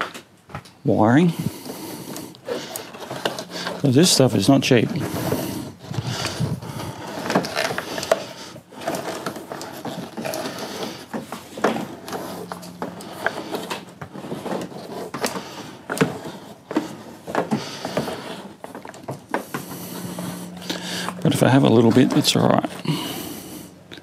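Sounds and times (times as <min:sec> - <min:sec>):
cable winding onto plastic spool: 0:01.4 - 0:24.0.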